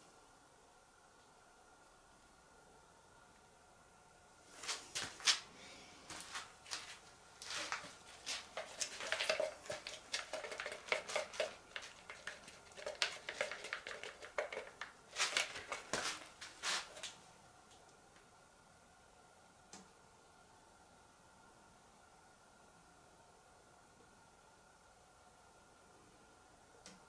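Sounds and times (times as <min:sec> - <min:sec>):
small hard objects clattering: 0:07.4 - 0:17.2.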